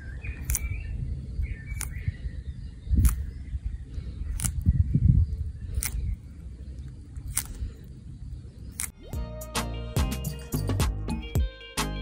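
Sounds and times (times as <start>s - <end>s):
tortoise crunching leaf: 0.4s - 0.7s, 3.0s - 3.3s, 4.3s - 4.6s, 5.6s - 8.0s.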